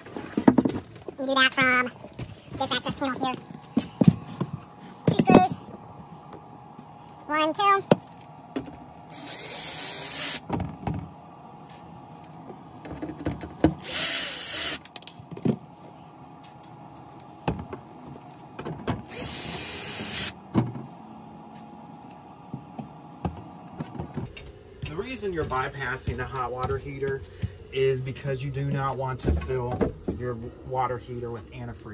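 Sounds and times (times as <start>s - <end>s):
power screwdriver running: 9.1s - 10.5s, 13.7s - 14.9s, 19.1s - 20.4s.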